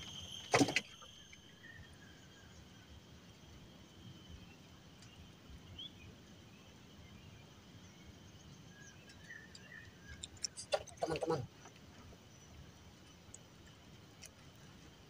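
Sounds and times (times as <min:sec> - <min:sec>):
high insect drone: 0:00.0 - 0:15.0
man's voice: 0:10.6 - 0:11.5.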